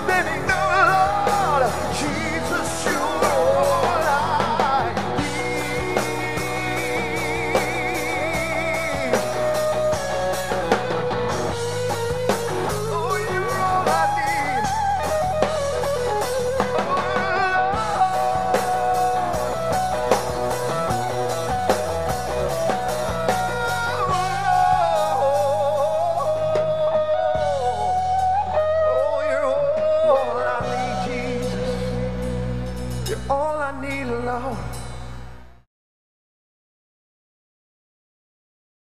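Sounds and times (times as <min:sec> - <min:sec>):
man singing: 0:00.0 - 0:09.8, 0:12.7 - 0:15.5, 0:16.7 - 0:20.2, 0:23.3 - 0:27.9, 0:28.8 - 0:32.4, 0:33.0 - 0:34.8
rock band playing: 0:00.0 - 0:35.6.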